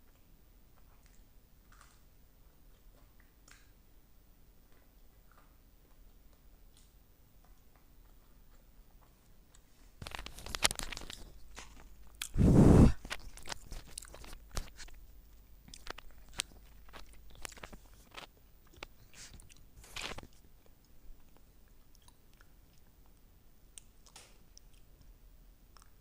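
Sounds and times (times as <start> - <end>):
crunchy chewing: 0.0 - 3.7, 4.6 - 26.0.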